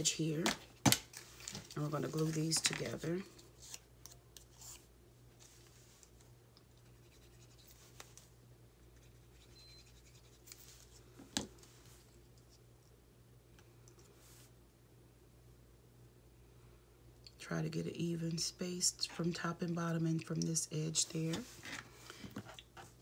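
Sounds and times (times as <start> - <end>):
faint steady hum: 0.0 - 23.0.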